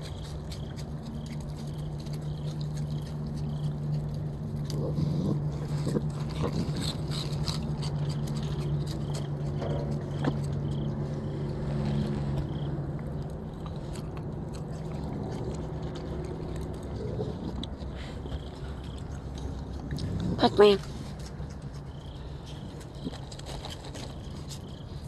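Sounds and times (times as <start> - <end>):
low machine hum: 0.0 - 25.0
raccoon crunching and chewing: 0.0 - 25.0.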